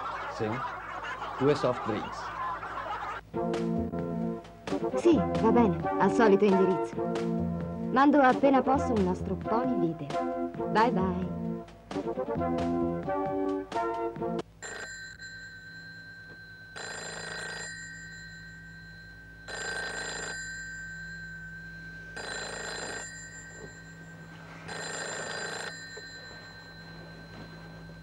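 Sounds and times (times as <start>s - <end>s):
telephone bell ringing: 14.6s - 28.0s.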